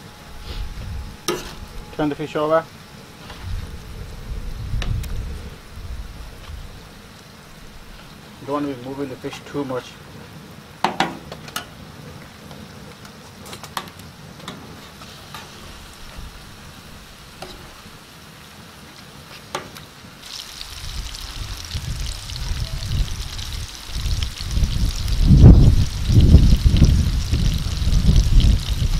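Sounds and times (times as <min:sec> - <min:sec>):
low rumble: 0:02.8 - 0:08.0, 0:20.5 - 0:28.9
fish sizzling in hot oil: 0:15.0 - 0:28.9.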